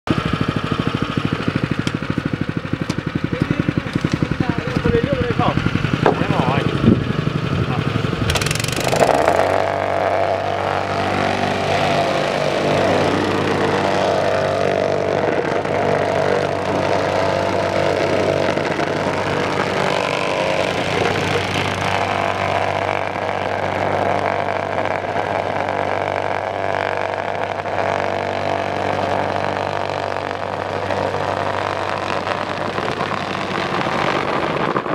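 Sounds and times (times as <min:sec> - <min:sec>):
plate compactor engine running: 0:00.1 - 0:34.9
vibrating plate compacting bricks: 0:08.2 - 0:11.8.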